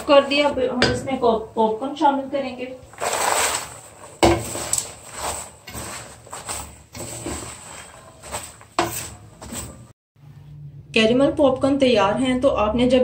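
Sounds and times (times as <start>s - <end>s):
spatula stirring popcorn in pan: 2.8s - 9.9s.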